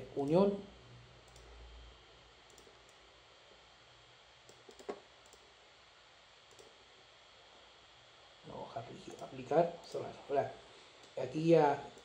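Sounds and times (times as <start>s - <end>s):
computer mouse clicks: 1.2s - 1.6s, 2.4s - 3.0s, 4.4s - 5.5s, 6.5s - 6.8s, 9.1s - 10.1s.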